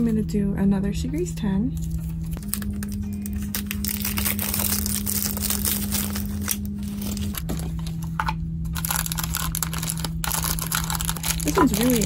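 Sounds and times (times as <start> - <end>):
paper packing rustling: 1.8 - 12.0
plastic wrapping crinkling and tearing: 1.8 - 12.0.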